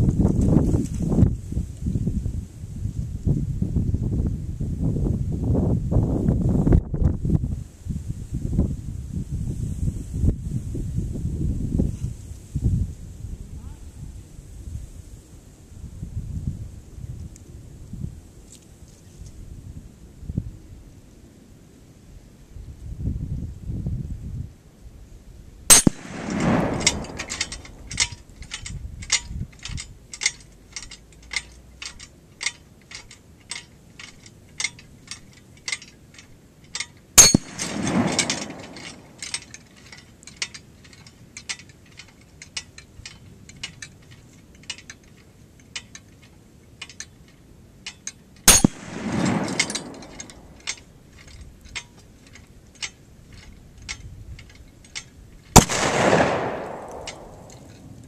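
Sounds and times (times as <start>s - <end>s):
rifle shots: 25.7s - 28.1s, 37.2s - 39.3s, 48.5s - 50.6s, 55.6s - 58.0s
bullet smacking steel plate: 25.7s - 35.8s, 36.8s - 39.6s, 47.9s - 51.9s, 55.5s - 58.0s
chains clinking: 25.7s - 55.9s.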